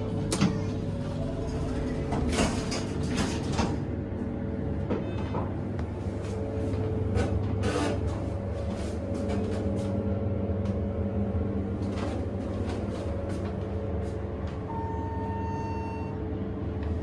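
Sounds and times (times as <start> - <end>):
elevator hum: 0.0 - 17.0
electronic beep: 14.7 - 16.2.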